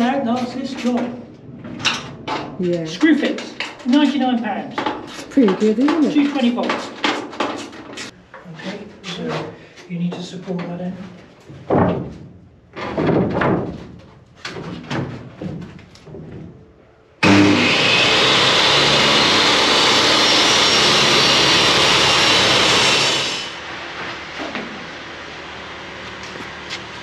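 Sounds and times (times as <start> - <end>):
board knocking and scraping: 0.4 - 8.2
table saw cutting wood: 17.2 - 27.0.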